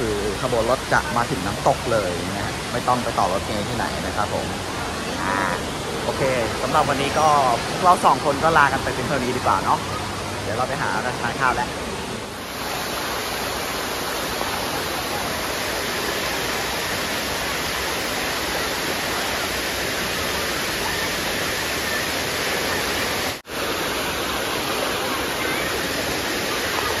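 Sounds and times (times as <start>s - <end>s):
waterfall rushing: 0.0s - 27.0s.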